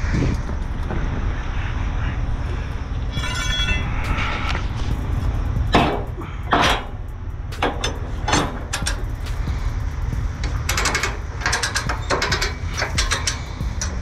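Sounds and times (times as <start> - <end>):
steady low rumble: 0.0 - 14.0
metal clanks and knocks: 3.1 - 14.0.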